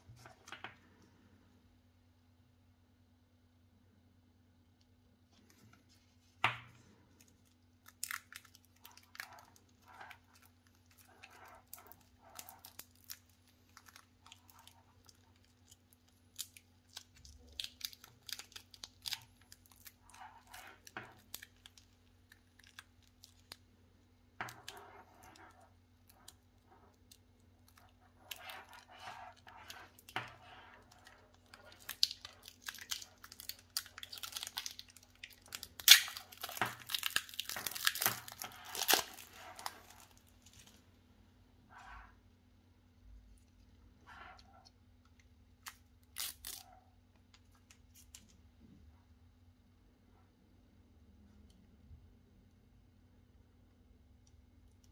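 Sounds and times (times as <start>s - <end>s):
plastic and cardboard crinkling: 5.3s - 23.6s, 24.4s - 40.8s.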